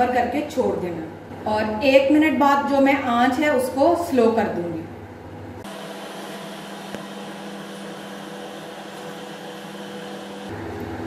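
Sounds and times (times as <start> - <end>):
gas burner hissing: 5.6 - 11.0.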